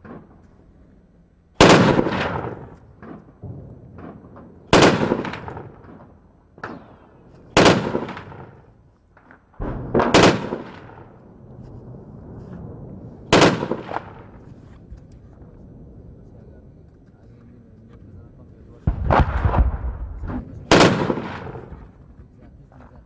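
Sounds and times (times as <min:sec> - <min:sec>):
distant gunshots: 0:01.6 - 0:08.7, 0:09.6 - 0:11.2, 0:13.3 - 0:14.4, 0:18.9 - 0:21.9
echoing gunshots: 0:01.6 - 0:14.5, 0:18.8 - 0:22.0.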